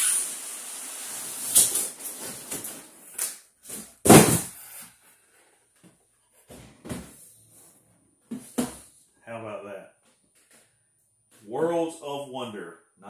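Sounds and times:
box thump: 4.0s - 4.5s
boxes knocking on table: 4.0s - 4.5s.

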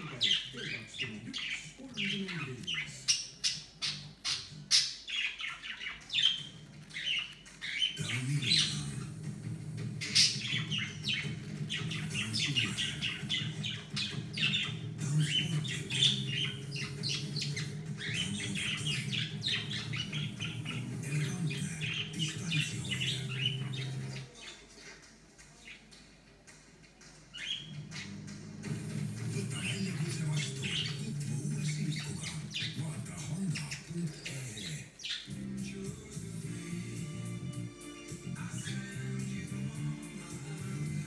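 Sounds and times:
cockatiel chirping and squawking: 0.0s - 8.8s, 10.0s - 24.3s, 29.4s - 35.5s.

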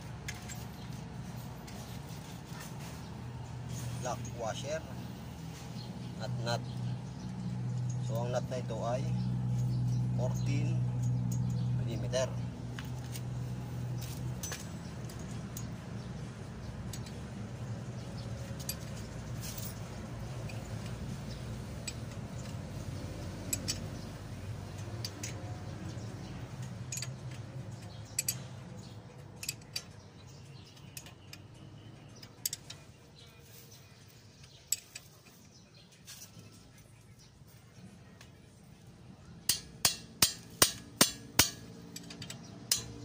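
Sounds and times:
spanner clinking on metal: 0.2s - 1.0s, 9.5s - 12.1s, 14.0s - 16.1s, 16.7s - 32.9s, 34.4s - 35.4s, 39.4s - 43.0s.

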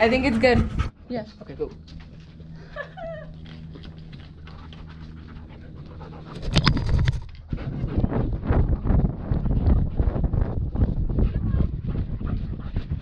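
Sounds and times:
dog panting rapidly: 0.0s - 1.4s, 4.1s - 6.6s, 7.4s - 13.0s.

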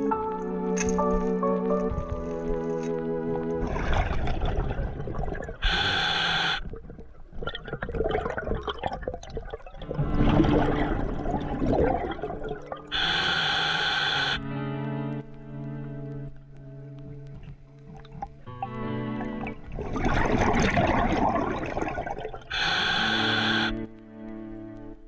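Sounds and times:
exhaled bubbles gurgling: 3.4s - 14.4s, 17.8s - 23.7s
regulator inhalation hiss: 5.6s - 6.7s, 12.9s - 14.4s, 22.5s - 23.8s.

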